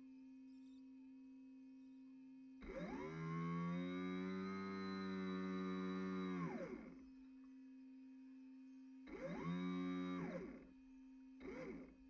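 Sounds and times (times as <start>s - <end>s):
model boat motor whining: 2.6s - 7.0s, 9.1s - 10.6s.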